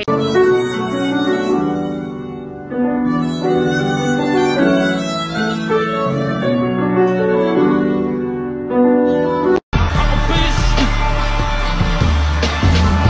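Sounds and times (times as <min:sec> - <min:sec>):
violin melody: 0:00.0 - 0:09.6
piano accompaniment: 0:00.0 - 0:13.0.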